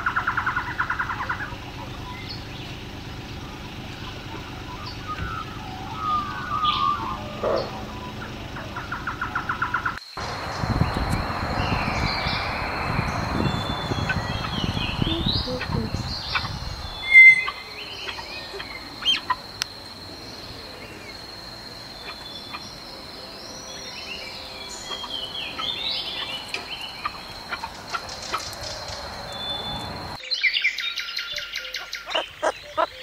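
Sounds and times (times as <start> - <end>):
small birds chirping: 0.0 - 33.0
thin steady high tone: 3.2 - 28.1.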